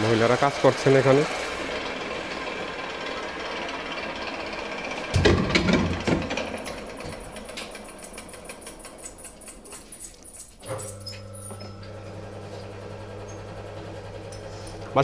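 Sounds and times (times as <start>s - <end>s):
electric lathe running: 0.0s - 9.3s, 11.1s - 15.0s
loud knocks and clatter: 4.8s - 9.4s.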